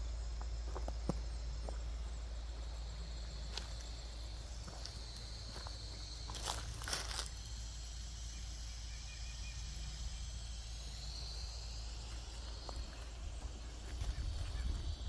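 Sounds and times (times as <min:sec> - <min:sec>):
insects trilling: 0:00.0 - 0:15.0
footsteps crunching on dry leaves: 0:03.4 - 0:07.5, 0:12.1 - 0:14.9.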